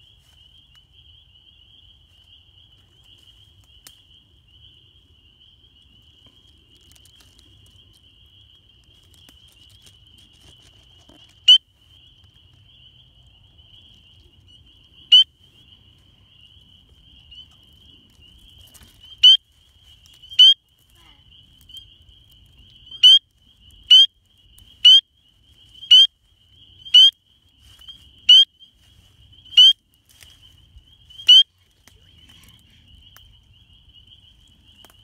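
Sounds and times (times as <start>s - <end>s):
frog peeps: 11.3s - 11.6s, 15.0s - 15.3s, 19.0s - 19.4s, 20.2s - 21.9s, 22.7s - 25.1s, 25.8s - 26.1s, 26.8s - 27.2s, 27.8s - 28.6s, 29.4s - 29.8s, 31.1s - 33.6s
chorus of calling frogs: 11.4s - 11.6s, 15.0s - 15.3s, 19.1s - 19.5s, 20.2s - 30.3s, 31.0s - 34.9s.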